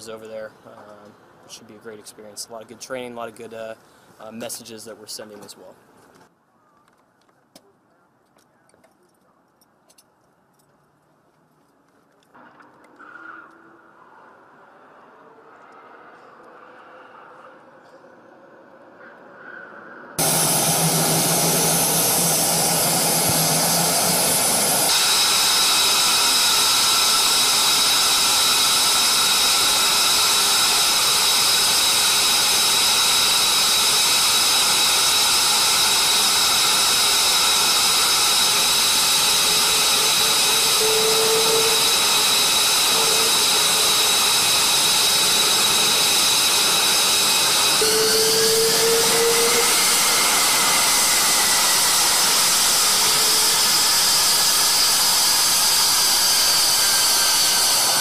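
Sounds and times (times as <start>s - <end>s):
jet engines running: 20.2s - 58.0s.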